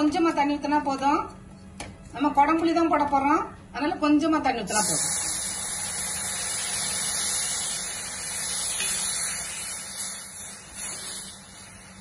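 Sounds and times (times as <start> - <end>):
water sizzling in hot oil: 4.8 - 12.0.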